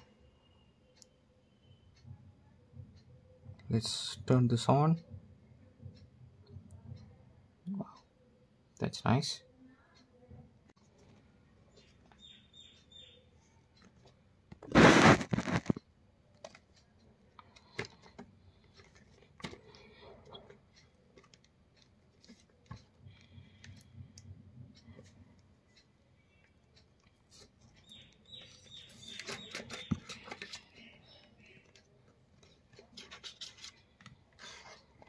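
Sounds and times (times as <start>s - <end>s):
blade scraping along box: 29.0s - 30.5s.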